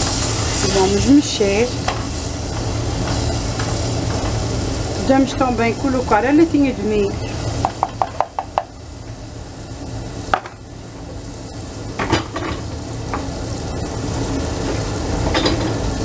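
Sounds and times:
sauce sizzling in pot: 0:00.0 - 0:16.0
wooden spoon knocking on pot: 0:07.6 - 0:08.7.

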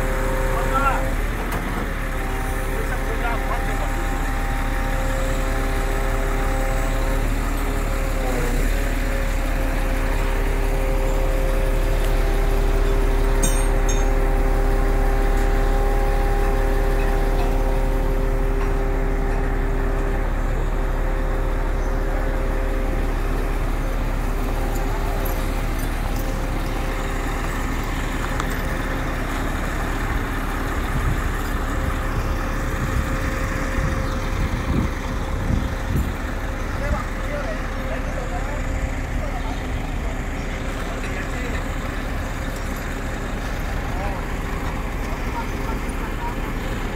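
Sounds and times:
diesel truck engine rumbling: 0:00.0 - 0:46.9.

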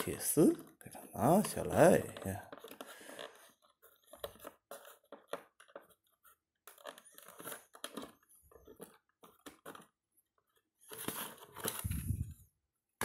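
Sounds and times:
cardboard box rustling: 0:10.8 - 0:12.4.

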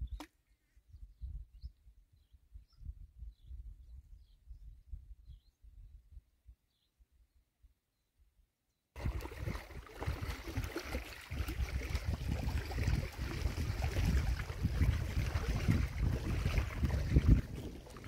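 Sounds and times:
wind buffeting microphone: 0:09.0 - 0:18.0.

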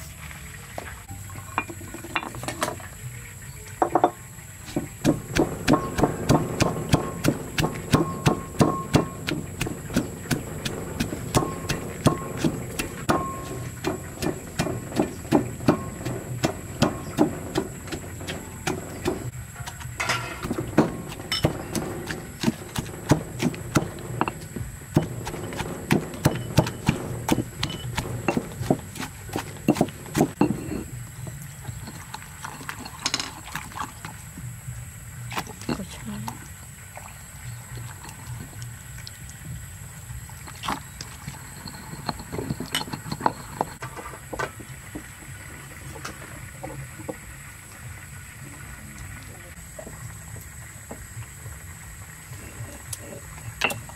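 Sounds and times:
low background rumble: 0:04.3 - 0:31.8
stone pestle pounding in mortar: 0:04.7 - 0:19.3, 0:20.0 - 0:30.6.

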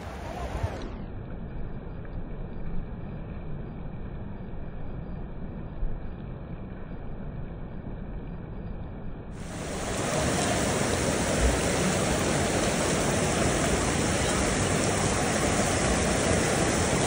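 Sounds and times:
fast-flowing stream rushing: 0:09.4 - 0:17.0
waterfall rushing: 0:09.4 - 0:17.0.

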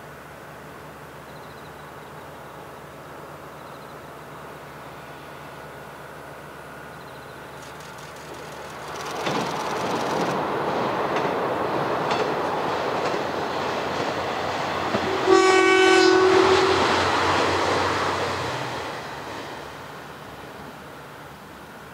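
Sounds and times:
diesel railcar passing: 0:00.0 - 0:21.9
wheels clicking over rail joints: 0:07.6 - 0:13.4
train horn: 0:14.9 - 0:18.7.

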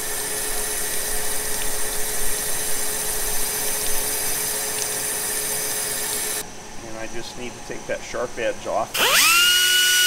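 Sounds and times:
grinder whining and hissing: 0:08.9 - 0:10.0.

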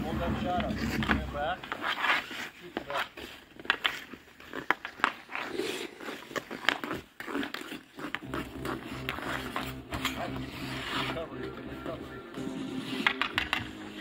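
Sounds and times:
skate blades scraping ice: 0:00.0 - 0:11.3, 0:12.4 - 0:14.0
hockey stick clacking on puck: 0:00.6 - 0:11.0, 0:13.0 - 0:13.8.

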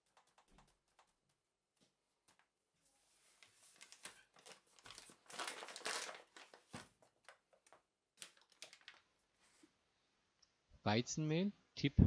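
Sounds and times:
paper bag rustling: 0:03.1 - 0:09.7.

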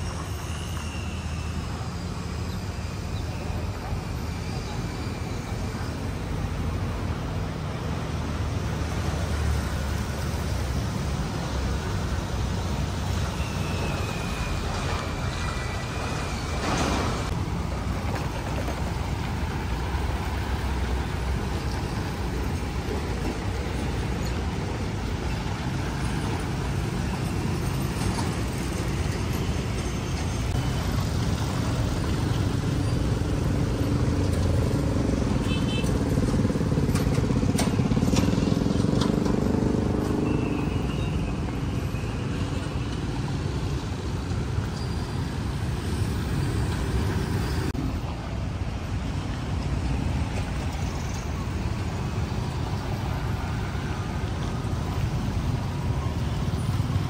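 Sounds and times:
road traffic wash: 0:00.0 - 0:57.0
vehicle engine passing: 0:36.0 - 0:40.4.

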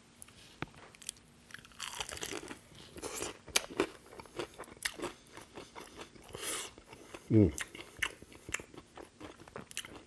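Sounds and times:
crunching crispy chicken: 0:01.0 - 0:05.2
chewing: 0:01.0 - 0:10.0.

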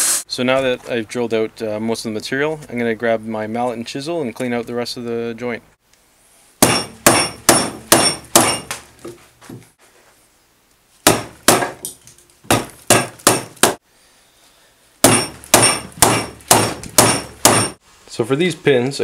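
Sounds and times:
mallet striking chisel: 0:06.6 - 0:08.8, 0:11.0 - 0:13.8, 0:15.0 - 0:17.8.

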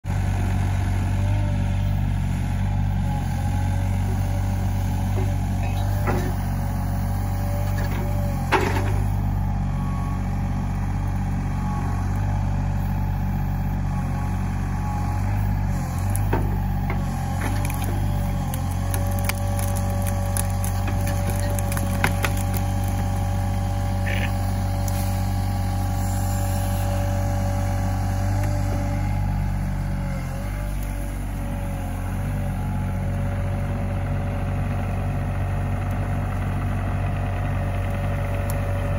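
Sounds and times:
excavator diesel engine running: 0:00.1 - 0:38.9
branches snapping and cracking: 0:15.8 - 0:25.5.

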